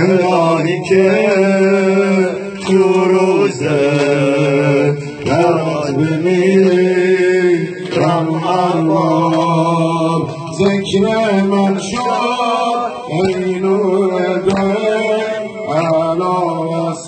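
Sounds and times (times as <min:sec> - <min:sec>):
man chanting a lament: 0:00.0 - 0:17.0.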